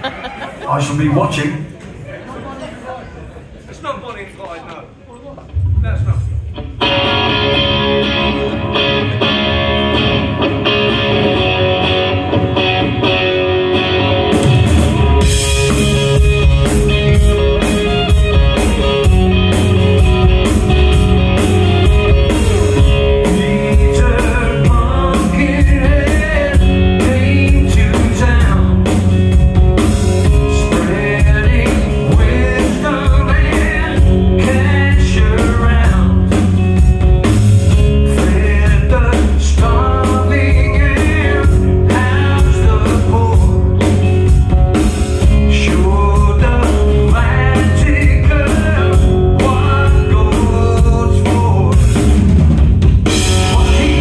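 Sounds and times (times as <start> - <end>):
drum kit: 5.4 - 54.0
bass guitar: 5.5 - 54.0
electric guitar: 5.5 - 54.0
man singing: 21.9 - 29.2, 30.2 - 36.6, 37.8 - 44.1, 45.2 - 52.2, 53.0 - 54.0.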